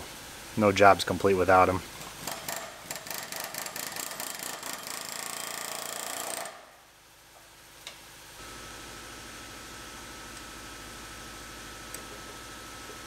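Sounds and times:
air chisel hammering: 0:02.2 - 0:06.7.

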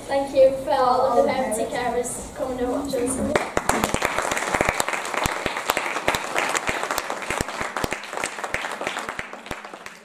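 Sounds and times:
audience applause: 0:03.3 - 0:10.0.

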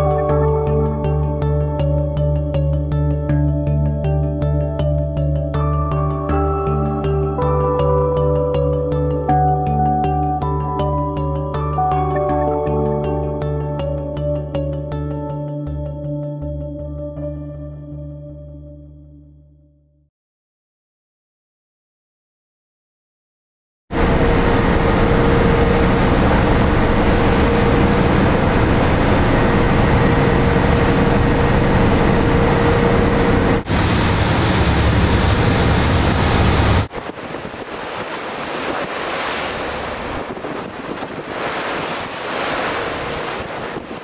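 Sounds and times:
boat engine drone: 0:23.9 - 0:44.0
sea noise: 0:23.9 - 0:44.0
rush of boat wake: 0:24.0 - 0:44.0
wind gusting on microphone: 0:24.0 - 0:44.0.

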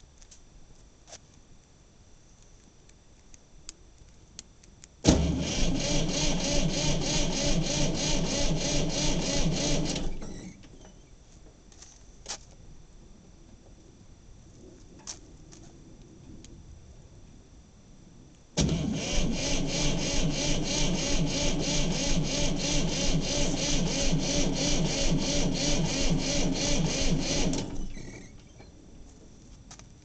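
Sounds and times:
diesel engine cranking: 0:05.0 - 0:11.0, 0:18.6 - 0:28.7.

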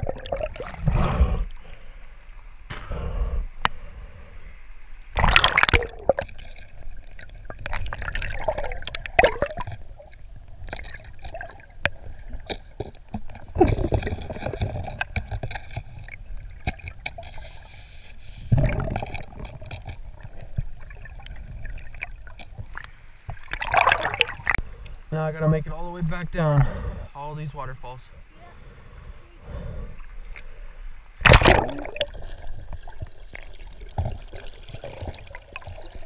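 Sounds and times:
underwater river current rumble: 0:00.0 - 0:36.0.

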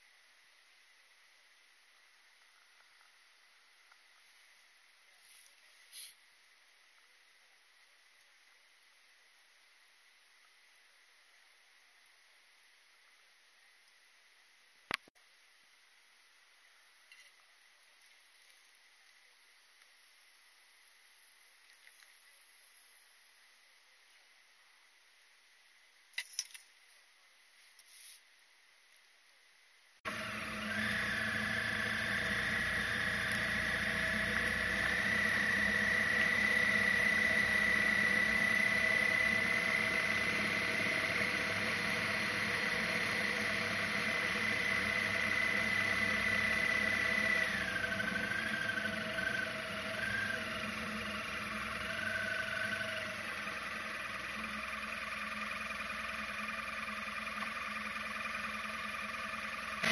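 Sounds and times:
motorcycle engine running: 0:30.1 - 0:59.9
steady high whine: 0:30.1 - 0:59.9.

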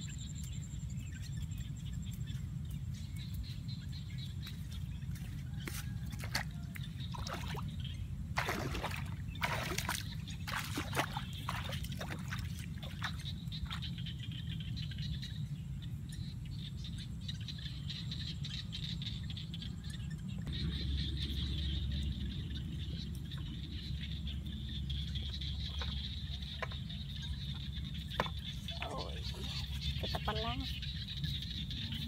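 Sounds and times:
low wind rumble on microphone: 0:00.0 - 0:32.0
feet sloshing through muddy water: 0:04.2 - 0:14.4.

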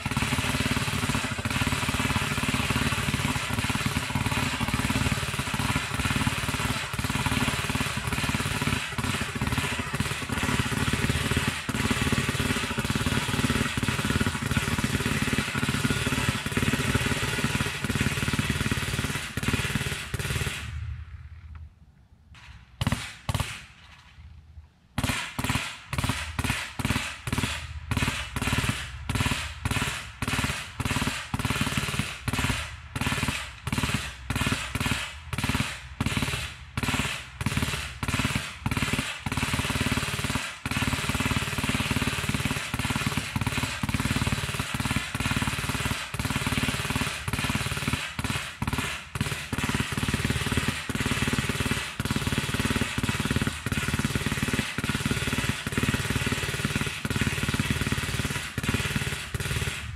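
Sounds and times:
automatic gunfire: 0:00.0 - 0:20.8, 0:22.4 - 0:23.8, 0:25.0 - 0:59.9.

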